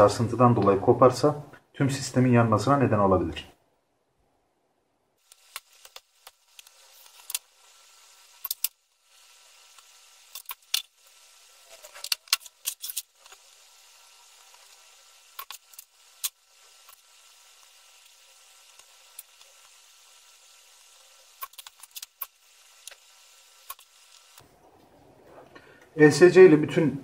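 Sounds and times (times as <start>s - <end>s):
faint steady hiss: 0.0s - 27.0s
hands handling wires and tools: 11.8s - 13.5s.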